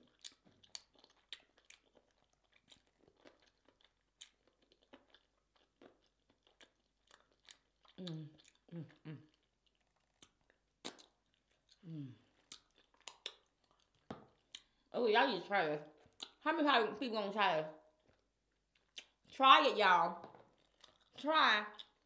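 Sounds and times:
chewing crunches and smacks: 0.0 - 14.9, 15.8 - 16.4, 17.8 - 19.4, 20.2 - 22.0
person humming mm: 8.0 - 9.3, 11.8 - 12.2.

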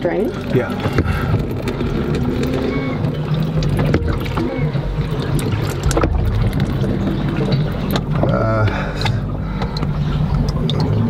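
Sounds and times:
low rumble in boat hull: 0.0 - 11.0
clicks and knocks of filter housing: 0.6 - 4.6.

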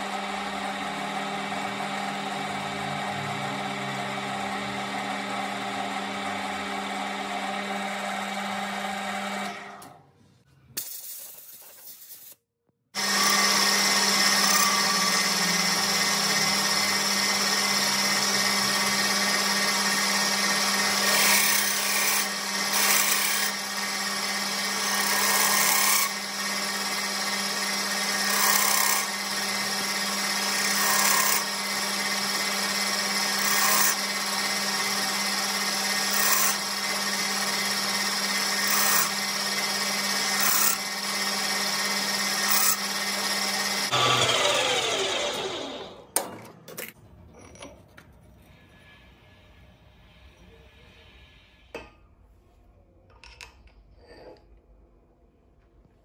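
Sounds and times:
metal lathe motor hum: 0.0 - 9.8, 13.0 - 46.0
cutting tool cutting metal: 13.0 - 46.2.

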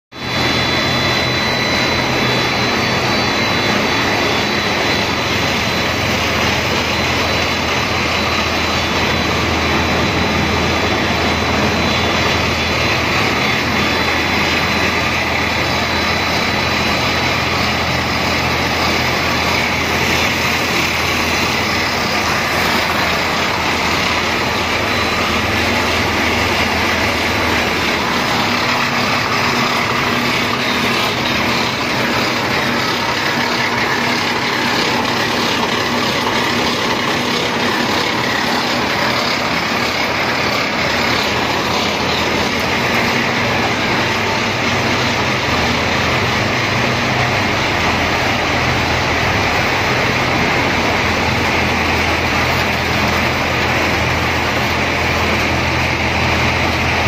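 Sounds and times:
machine drone of motors and fans: 0.2 - 57.0
thin high whine: 0.2 - 57.0.

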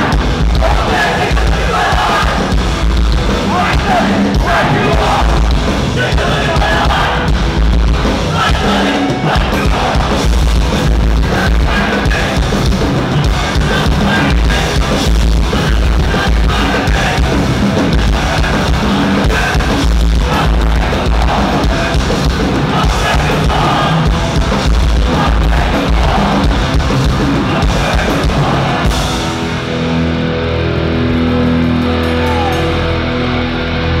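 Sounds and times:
shouted vocals: 0.0 - 2.5, 3.4 - 7.3, 32.0 - 33.0
distorted electric guitars: 0.0 - 34.0
pounding drum kit: 0.0 - 34.0
punk band playing live: 0.0 - 34.0.

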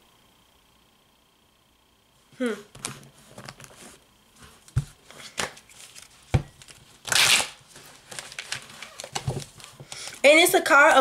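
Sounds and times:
cards riffling: 4.6 - 10.2.

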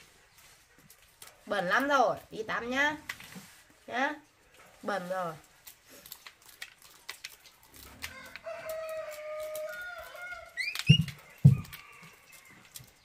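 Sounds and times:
corn kernels being stripped: 4.5 - 13.0
rooster crowing: 8.1 - 12.8
dull thumps: 10.8 - 11.8.

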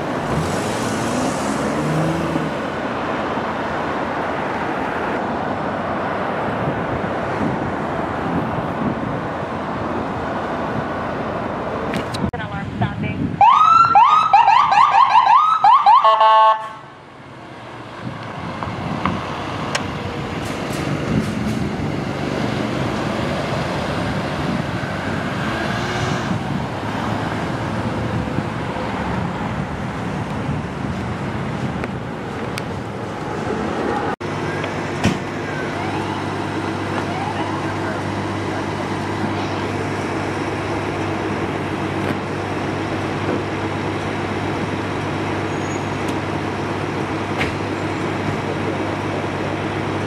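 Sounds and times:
traffic road and engine noise: 0.0 - 50.0
ambulance siren yelping: 13.4 - 16.8, 35.4 - 37.8.

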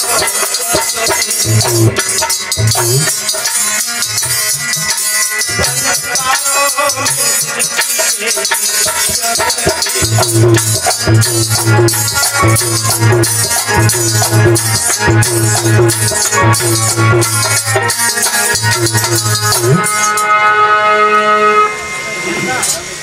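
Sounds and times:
man singing devotional song: 0.0 - 3.4, 5.5 - 14.5
fast jingling percussion: 0.0 - 20.1
low repeating bass line: 10.0 - 17.9, 18.5 - 19.9.

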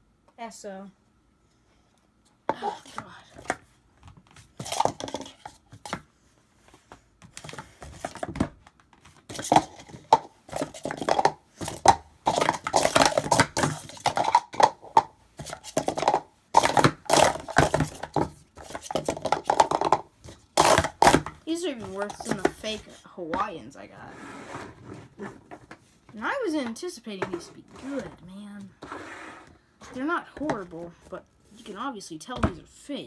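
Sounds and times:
plastic cups clattering: 4.3 - 6.1, 7.2 - 23.6, 25.1 - 31.7.

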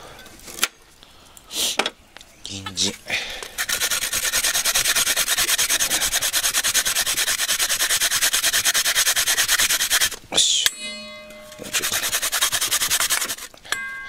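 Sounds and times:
carrot being grated: 3.6 - 10.2, 11.6 - 13.5.

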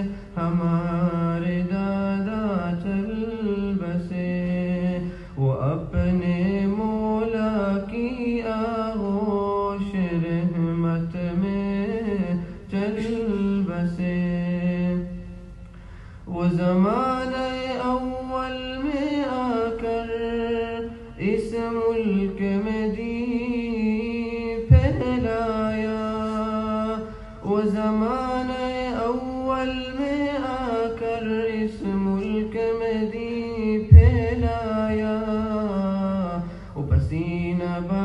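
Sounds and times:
person singing a cappella: 0.0 - 15.4, 16.3 - 38.0
low thumps: 5.9 - 6.4, 24.7 - 25.7, 33.9 - 35.6.

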